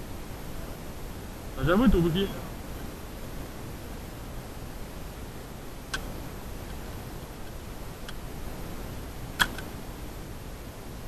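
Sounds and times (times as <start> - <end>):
faint steady hiss: 0.0 - 11.0
airsoft gun clicks: 5.9 - 6.8, 9.3 - 9.9.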